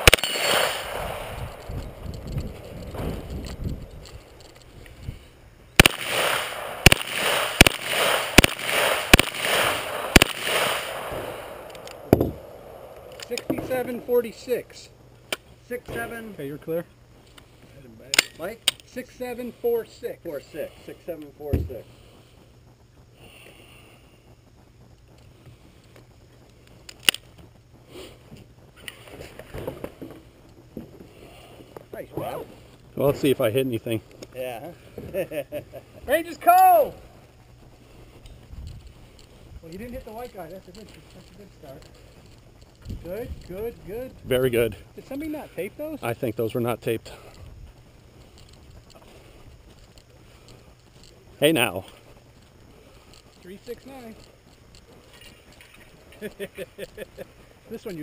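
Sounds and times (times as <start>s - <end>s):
gunshots with echo: 0.0s - 2.0s, 5.8s - 12.9s
sharp crack: 0.0s - 4.9s, 5.8s - 14.6s, 18.0s - 19.0s, 26.8s - 28.2s
low hum and hiss: 0.0s - 58.0s.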